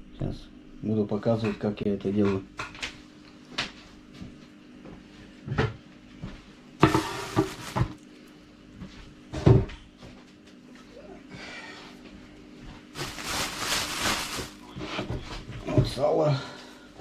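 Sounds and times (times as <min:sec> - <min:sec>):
knocks and thumps: 0:06.8 - 0:08.0
rustling and clatter: 0:06.8 - 0:08.0, 0:13.0 - 0:16.0.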